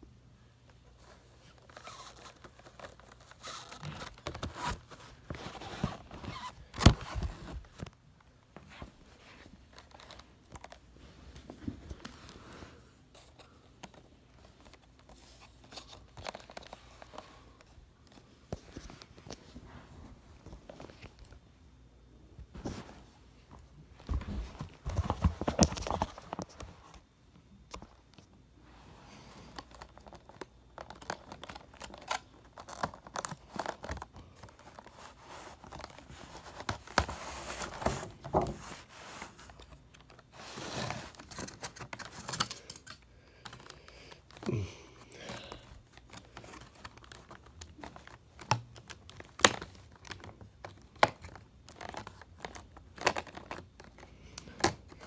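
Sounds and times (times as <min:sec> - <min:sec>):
plastic packaging crinkling: 0:01.0 - 0:07.9, 0:09.6 - 0:10.9, 0:29.3 - 0:55.0.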